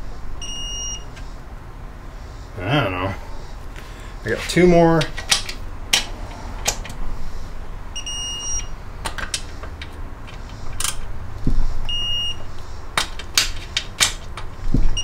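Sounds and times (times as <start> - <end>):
electronic beeps: 0.4 - 1.1, 8.0 - 8.7, 11.9 - 12.4.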